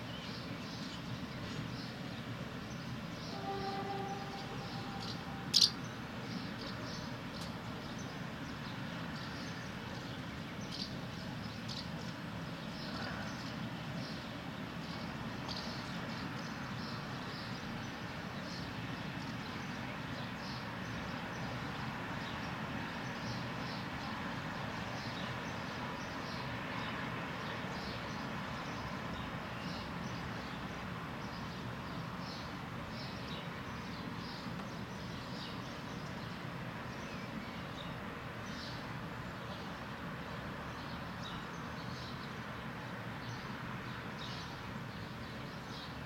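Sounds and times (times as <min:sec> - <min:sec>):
distant city hum: 0:00.1 - 0:46.0
bird chirping: 0:03.3 - 0:06.8.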